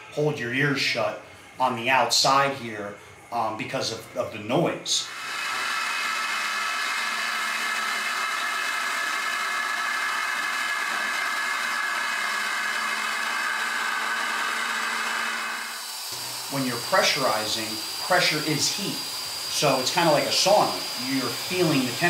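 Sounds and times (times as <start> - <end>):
compressed air venting: 5.0 - 22.0.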